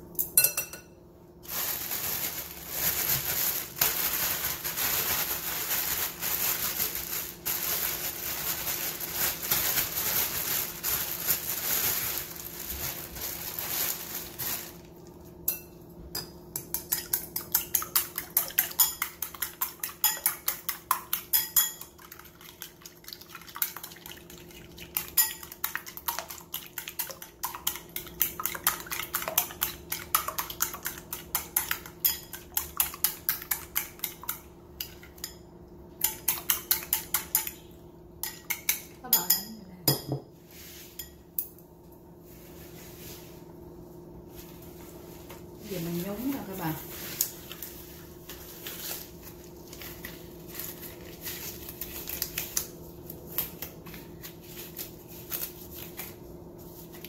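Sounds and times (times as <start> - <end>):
plastic bag crinkling: 1.4 - 15.1.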